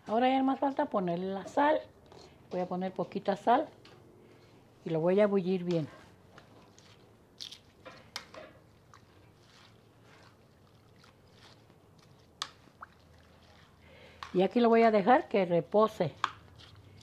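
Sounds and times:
wet rustling of salad tossed: 0:06.3 - 0:14.4.

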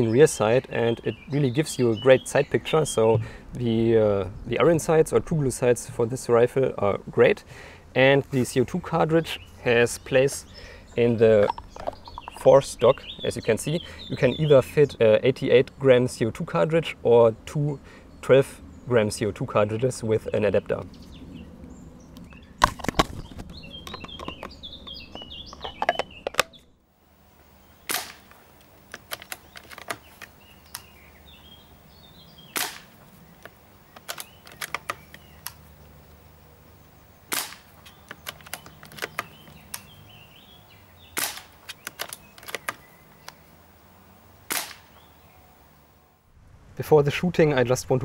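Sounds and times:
air rifle shots: 0:27.8 - 0:28.4, 0:32.5 - 0:33.0, 0:37.3 - 0:39.4, 0:41.2 - 0:42.8, 0:44.5 - 0:45.0.

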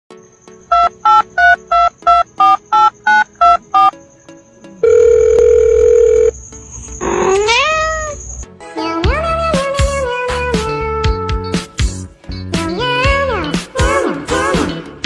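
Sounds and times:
steady telephone tone: 0:00.7 - 0:03.9, 0:04.8 - 0:06.4
telephone keypad beeps: 0:00.7 - 0:04.0, 0:04.8 - 0:06.3.

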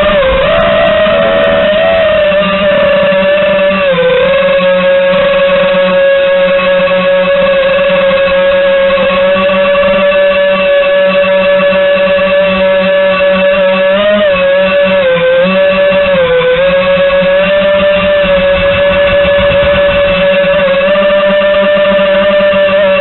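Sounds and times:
drone motors whining: 0:00.0 - 0:23.0.

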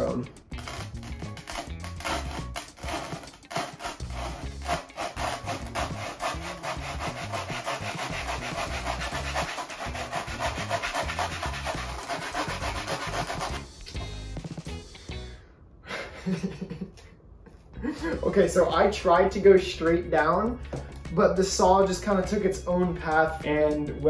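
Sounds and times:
handsaw sawing styrofoam: 0:00.6 - 0:13.6.

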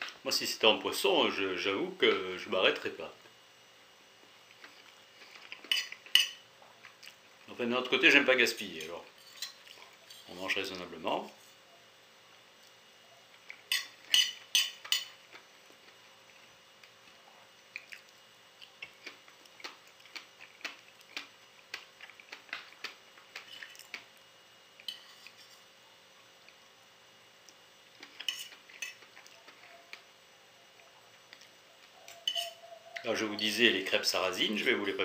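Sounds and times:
fork clinking and scraping on plate: 0:05.3 - 0:06.4, 0:08.8 - 0:10.4, 0:13.6 - 0:15.2, 0:24.8 - 0:25.6, 0:28.0 - 0:29.6, 0:32.0 - 0:32.7.

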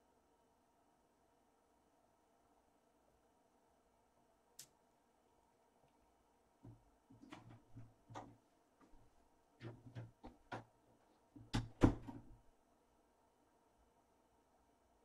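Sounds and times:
loud knocks: 0:11.4 - 0:12.4.

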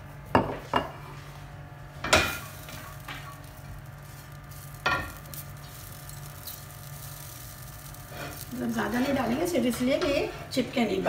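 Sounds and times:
spatula spreading oil on griddle: 0:02.0 - 0:10.4.

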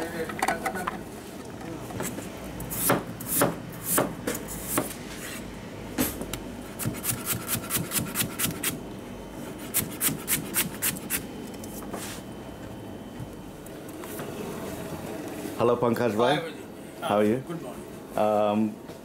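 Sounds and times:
knife chopping potatoes on board: 0:02.8 - 0:04.9.

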